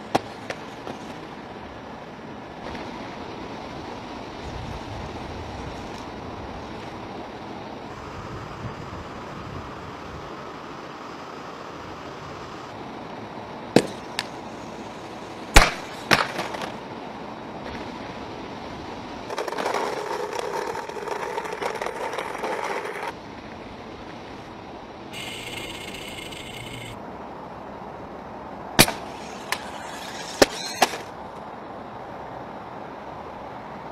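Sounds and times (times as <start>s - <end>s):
wheels rattling over concrete: 19.3s - 23.2s, 25.2s - 27.0s, 28.9s - 31.2s.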